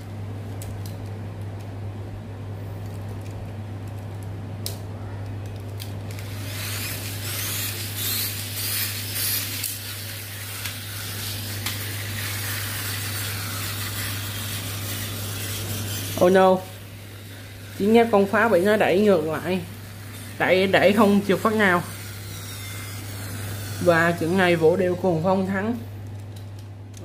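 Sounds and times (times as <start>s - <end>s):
toy car motors whirring: 5.8s - 24.5s
wheels scrubbing on tile floor: 6.1s - 24.5s.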